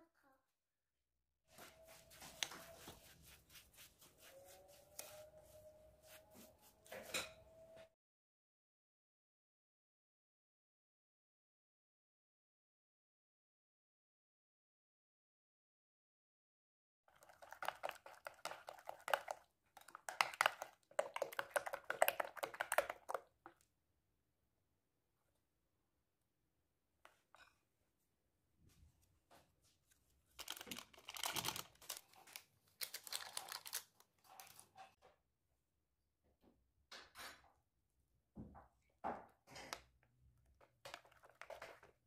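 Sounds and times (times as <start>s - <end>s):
hand rubbing gritty mixture in bowl: 1.5s - 7.1s, 17.1s - 23.3s.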